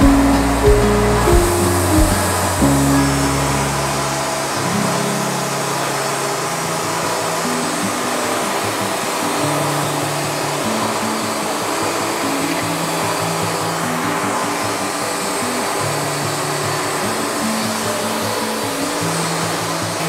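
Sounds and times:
background music: 0.0 - 6.2.

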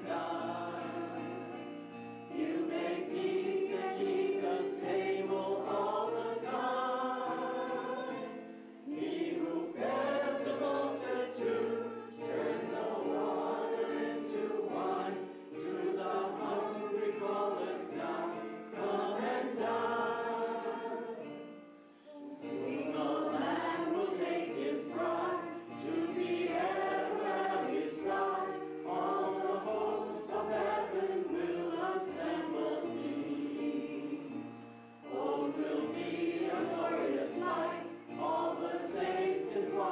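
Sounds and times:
group singing a hymn: 0.0 - 39.9.

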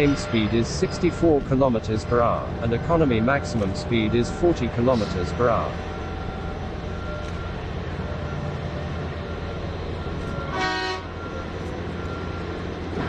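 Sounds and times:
heavy mining machinery drone: 0.0 - 13.0
horn toot: 10.5 - 11.2.

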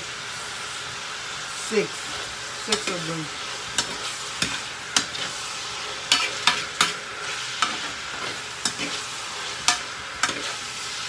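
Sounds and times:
vegetables sizzling in a frying pan: 0.0 - 11.0
metal spoon scraping a pan: 2.1 - 10.9.

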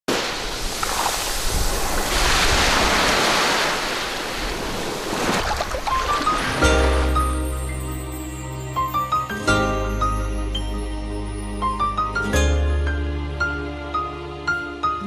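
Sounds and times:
churning splashing water: 0.1 - 7.4.

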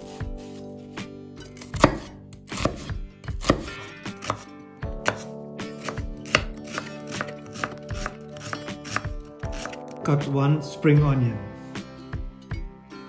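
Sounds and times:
knife chopping onion on wooden board: 1.5 - 9.9.

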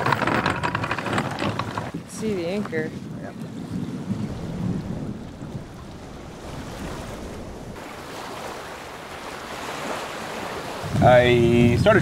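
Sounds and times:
water lapping: 0.0 - 12.0
wind on microphone: 0.0 - 12.0.

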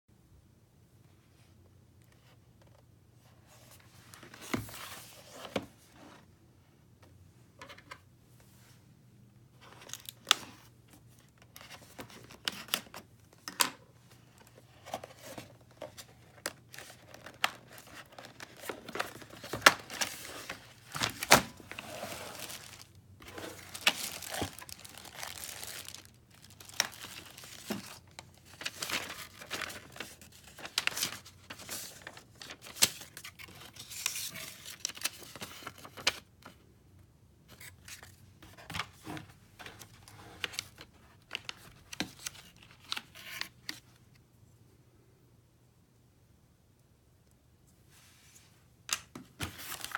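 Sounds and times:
plastic film crinkling and tearing: 17.0 - 31.2.

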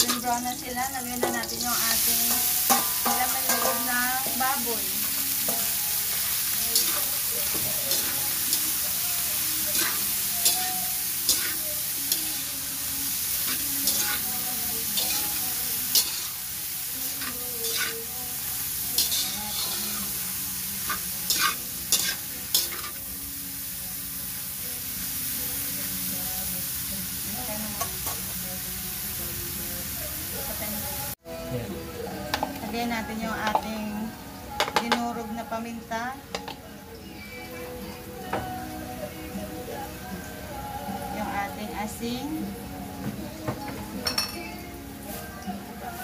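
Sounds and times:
meat sizzling in hot oil: 0.0 - 31.2
spatula scraping a wok: 9.6 - 12.4, 13.4 - 16.5, 17.1 - 18.0, 18.9 - 20.2, 20.8 - 23.0.

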